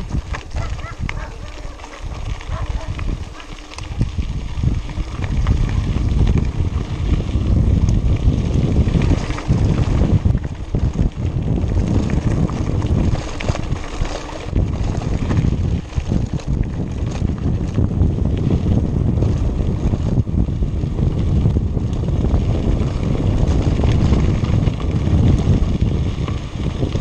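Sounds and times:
tyres crunching over gravel: 0.0 - 20.0
bike rattling over bumps: 0.0 - 27.0
wind buffeting microphone: 0.0 - 27.0.

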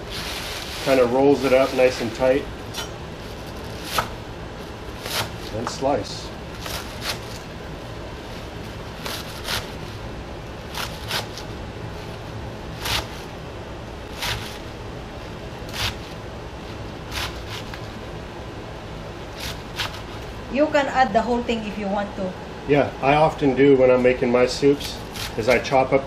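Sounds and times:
knife cutting greens on wooden board: 3.5 - 4.1, 5.0 - 5.7, 6.6 - 7.4, 9.0 - 9.8, 10.7 - 11.5, 12.8 - 13.3, 14.1 - 14.7, 15.7 - 16.2, 17.1 - 17.8, 19.4 - 20.1, 24.8 - 25.8.

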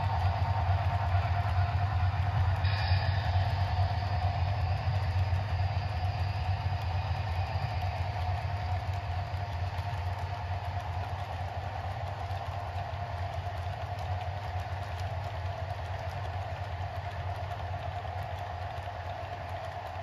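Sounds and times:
high whine: 0.0 - 11.8.

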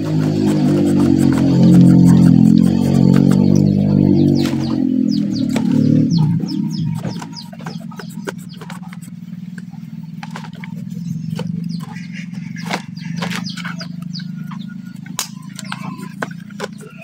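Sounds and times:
knife blade scraping wood: 0.0 - 3.8, 6.7 - 9.2, 15.6 - 17.0
steady low hum: 0.0 - 17.0.

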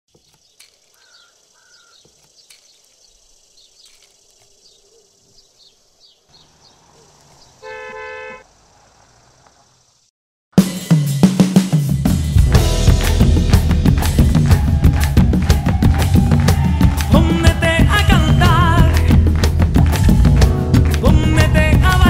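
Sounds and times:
vehicle horn: 7.6 - 8.5
band music with drum kit: 10.6 - 22.0.

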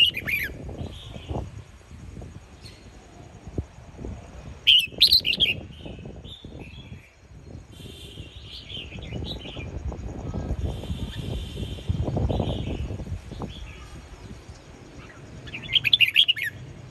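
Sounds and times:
bulbul singing: 0.0 - 1.6, 4.6 - 10.0, 10.6 - 16.9.

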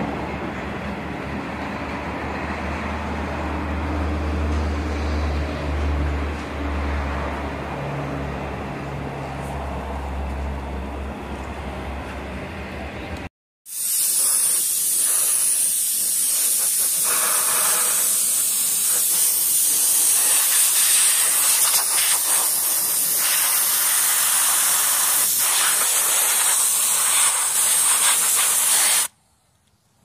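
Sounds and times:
spray jet hissing: 13.7 - 29.1.

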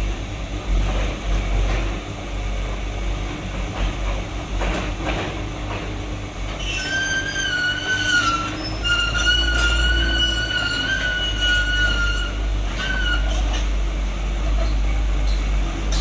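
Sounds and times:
excavator engine rumble: 0.0 - 16.0
high steady squeal: 6.6 - 13.5.

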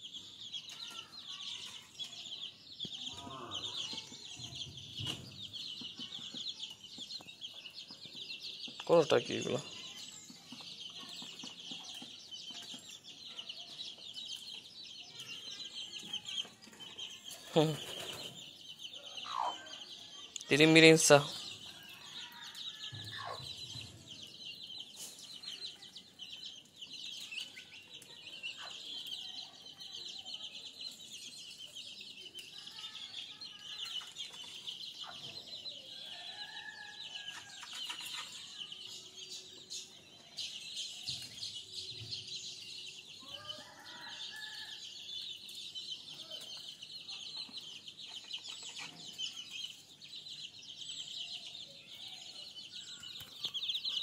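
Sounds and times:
chickens clucking: 16.0 - 25.7, 34.0 - 36.2, 37.1 - 38.6, 46.1 - 49.9
high-pitched chatter: 21.4 - 41.3.

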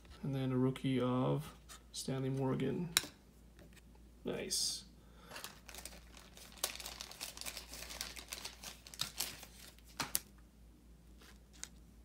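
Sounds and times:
cards and plastic crackling: 5.3 - 10.4, 11.2 - 11.9.

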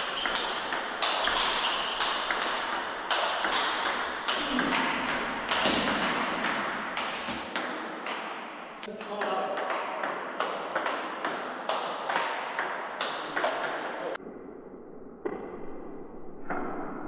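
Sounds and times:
ball clicking off bats: 0.1 - 8.2
ball bouncing on table: 0.2 - 8.2.

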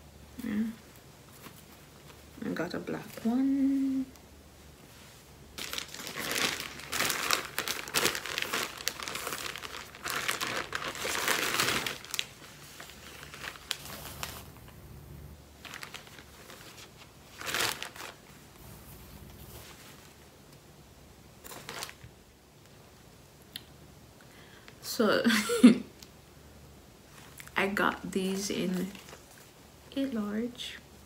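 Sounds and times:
packaging crinkling and rustling: 5.6 - 14.8, 15.6 - 18.4, 21.4 - 22.8, 28.3 - 29.6.

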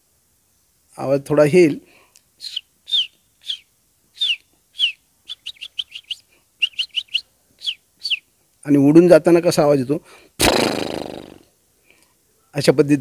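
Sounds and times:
man imitating bird chirps: 2.4 - 8.3.

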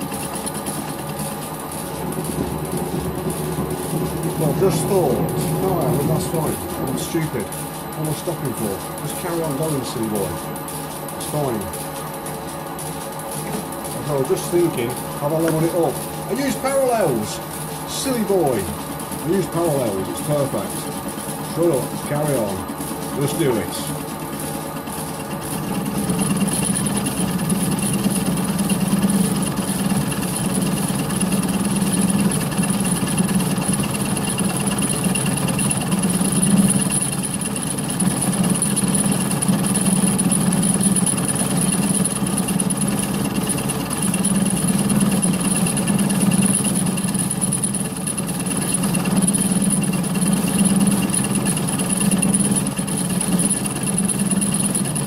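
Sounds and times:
lathe humming with high whine: 0.0 - 55.0.

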